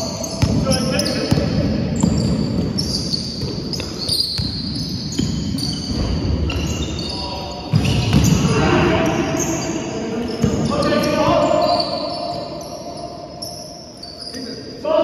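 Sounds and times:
sneakers squeaking on wooden court: 0.0s - 14.6s
basketball bouncing: 7.7s - 8.5s.

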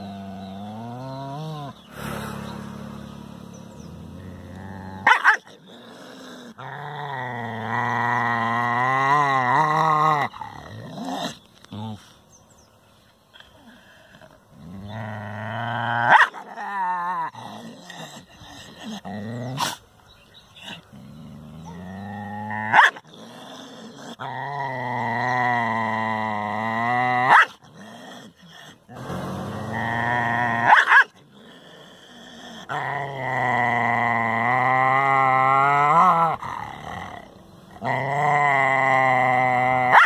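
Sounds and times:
dog growling: 3.1s - 12.1s, 13.6s - 19.8s, 20.6s - 40.0s
dog barking: 5.0s - 5.5s, 22.7s - 23.0s, 30.7s - 31.2s.

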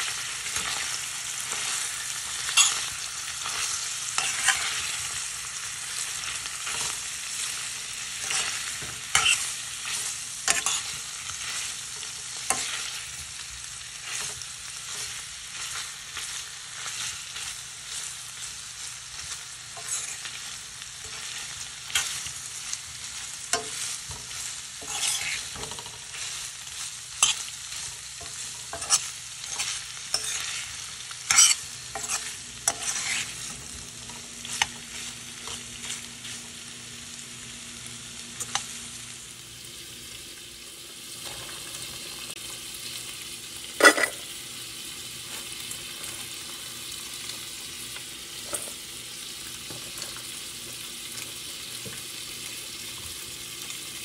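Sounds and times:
chicken sizzling in oil: 0.0s - 54.0s
utensil scraping a pan: 8.2s - 11.7s, 19.2s - 22.3s, 23.6s - 36.5s, 43.8s - 44.2s.

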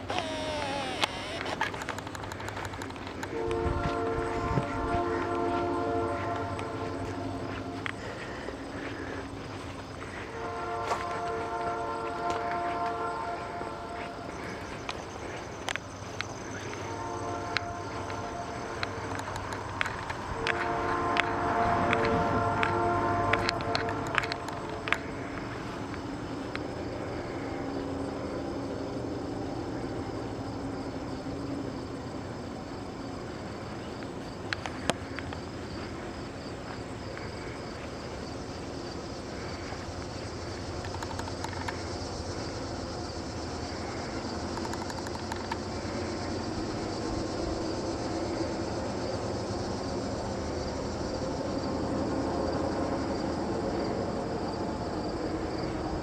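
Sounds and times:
sharp clicks: 0.0s - 3.3s, 18.8s - 20.6s, 40.8s - 41.8s, 44.5s - 45.7s
insects chirping: 0.0s - 56.0s.

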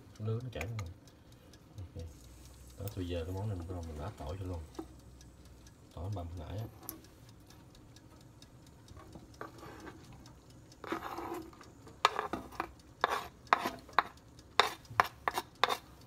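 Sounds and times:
spoon scraping cutting board: 9.0s - 10.0s, 10.8s - 15.9s.

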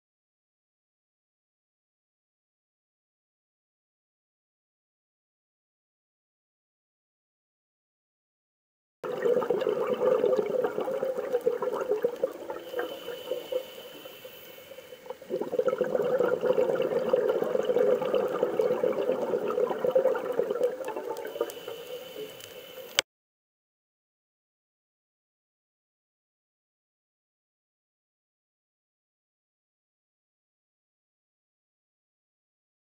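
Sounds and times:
underwater rushing bubbling water: 9.0s - 14.1s, 14.7s - 22.9s.

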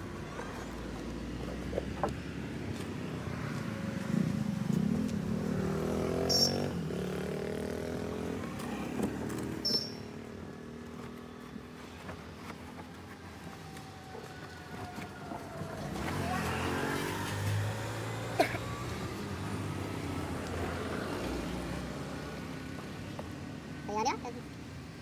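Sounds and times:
vehicle engine revving: 4.2s - 11.4s, 15.9s - 22.2s
short high squeaks: 9.6s - 10.2s.

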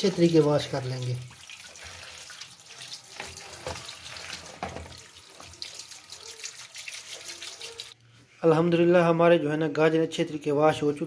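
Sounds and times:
tap water splashing in colander: 0.0s - 8.0s
hands rubbing vegetables: 1.8s - 8.0s.

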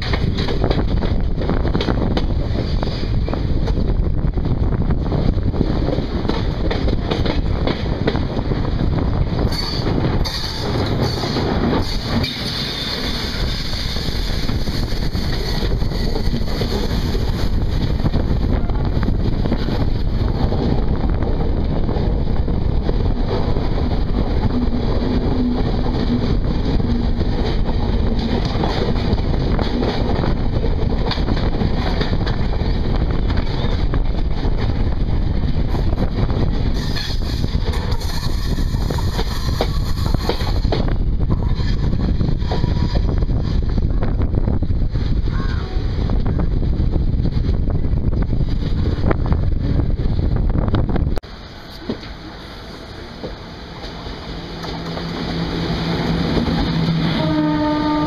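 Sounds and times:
wind buffeting microphone: 0.0s - 51.5s
moving train running noise: 0.0s - 58.0s
passing train coaches hiss: 9.1s - 20.3s, 35.6s - 44.3s, 51.2s - 58.0s.

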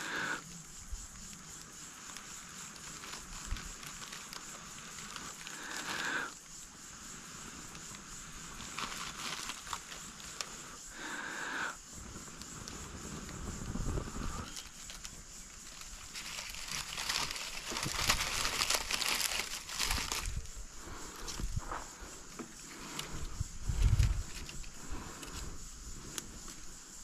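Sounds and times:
dry leaves crinkling and crackling: 1.1s - 6.2s, 7.6s - 10.6s, 14.1s - 21.7s.

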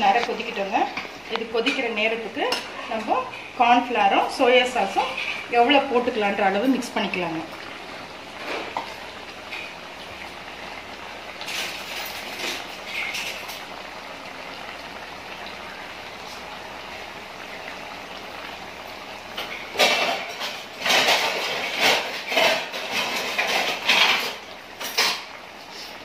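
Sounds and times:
gravy bubbling: 0.0s - 26.0s
utensils clattering and scraping: 11.4s - 13.7s, 19.4s - 26.0s.

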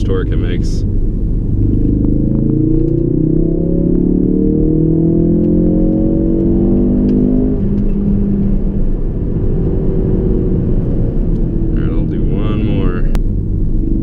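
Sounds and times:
car engine at full throttle: 0.0s - 14.0s
road and tyre rumble: 0.0s - 14.0s.

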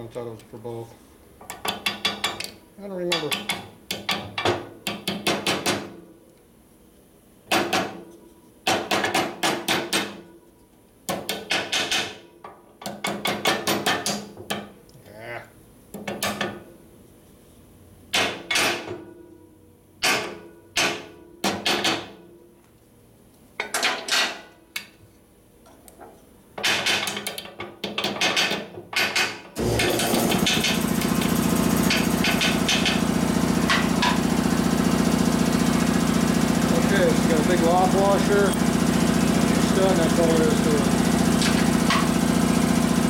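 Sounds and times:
hammer tapping on metal: 3.1s - 5.9s.

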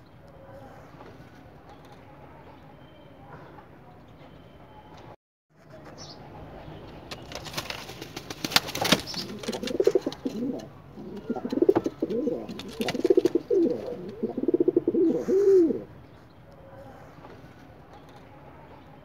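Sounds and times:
rustling: 7.1s - 14.3s
pigeon cooing: 9.1s - 15.9s.

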